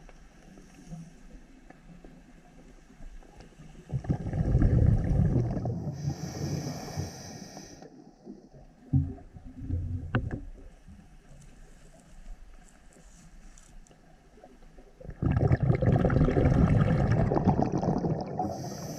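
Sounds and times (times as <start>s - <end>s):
exhaled bubbles rumbling: 3.8s - 6.4s, 8.2s - 10.7s, 14.9s - 18.9s
regulator inhalation hiss: 5.9s - 7.9s, 18.4s - 18.9s.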